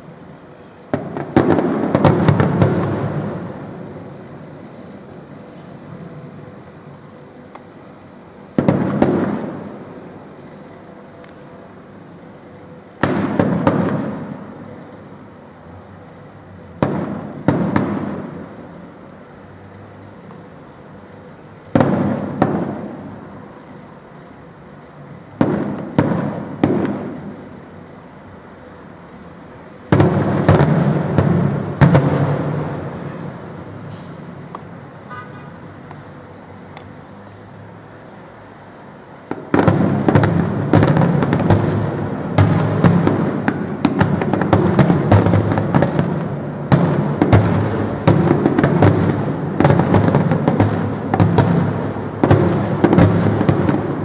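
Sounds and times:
firework shells bursting: 0:00.9 - 0:03.9.

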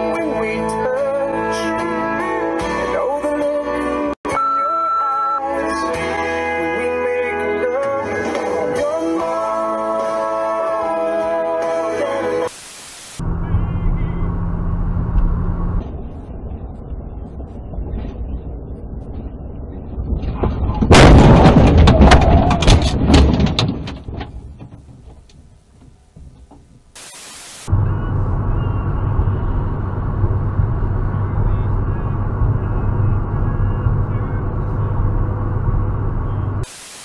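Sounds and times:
short burst of hiss: 0:12.5 - 0:13.2, 0:27.0 - 0:27.7, 0:36.6 - 0:37.0
road noise inside car: 0:13.2 - 0:21.5, 0:22.2 - 0:36.7
car engine noise: 0:13.2 - 0:36.7
car crash crunching impacts: 0:20.1 - 0:25.2.

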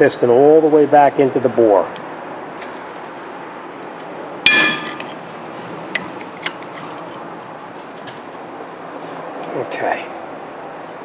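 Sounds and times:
sharp metallic clink: 0:04.5 - 0:05.2.

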